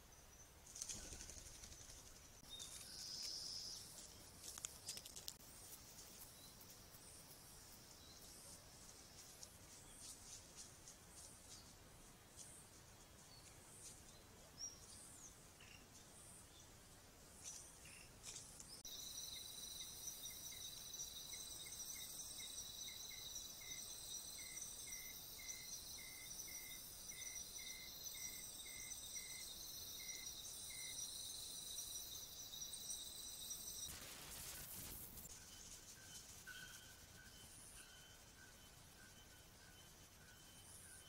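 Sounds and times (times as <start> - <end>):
faint forest ambience: 0.0 - 41.0
cricket-like trills: 18.8 - 41.0
short evenly spaced chirps: 18.8 - 41.0.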